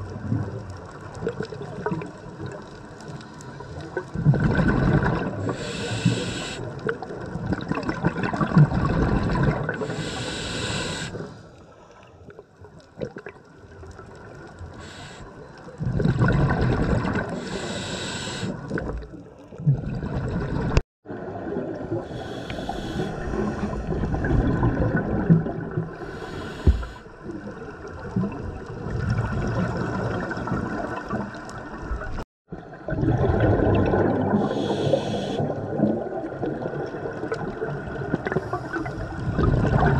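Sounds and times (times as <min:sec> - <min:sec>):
exhaled bubbles underwater: 0:00.0 - 0:11.3, 0:12.3 - 0:39.9
regulator inhale hiss: 0:05.4 - 0:06.7, 0:09.8 - 0:12.0, 0:14.7 - 0:15.5, 0:17.3 - 0:18.7, 0:22.1 - 0:23.9, 0:26.0 - 0:27.2, 0:34.4 - 0:35.5.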